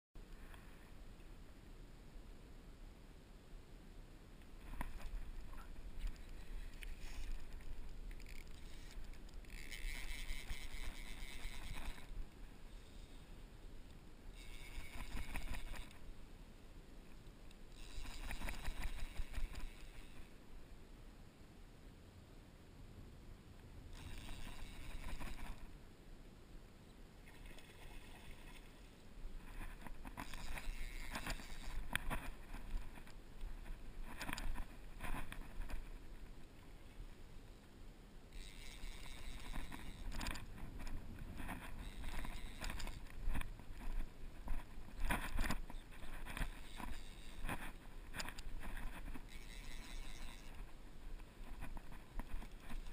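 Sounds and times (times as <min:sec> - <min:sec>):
light clicks of reel handling: 0:04.4 - 0:16.1, 0:17.1 - 0:20.3, 0:23.6 - 0:25.8, 0:29.4 - 0:37.8, 0:38.4 - 0:52.9
fishing reel ratcheting: 0:06.0 - 0:12.2, 0:14.4 - 0:16.0, 0:17.7 - 0:20.3, 0:23.9 - 0:25.6, 0:29.4 - 0:33.1, 0:38.3 - 0:50.8
wind rumble on microphone: 0:39.2 - 0:49.3.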